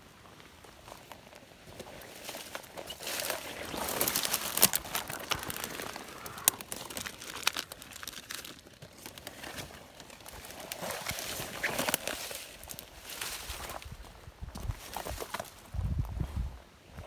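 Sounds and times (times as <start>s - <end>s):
dry leaves and twigs crackling: 0.0s - 16.2s
plastic bag crinkling: 2.7s - 13.4s.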